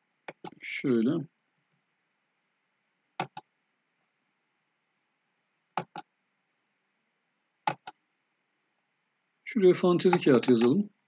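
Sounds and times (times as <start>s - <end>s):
faint steady hiss: 0.0s - 11.0s
computer mouse clicks: 0.2s - 0.6s, 3.2s - 3.5s, 5.8s - 6.1s, 7.6s - 8.0s, 10.0s - 10.8s.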